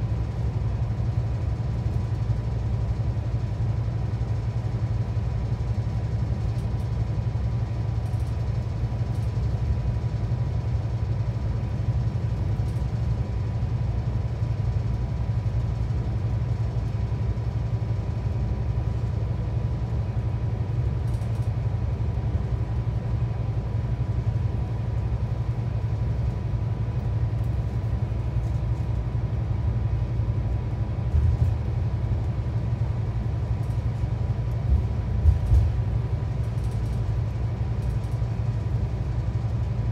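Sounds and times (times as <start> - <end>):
diesel engine drone: 0.0 - 39.9.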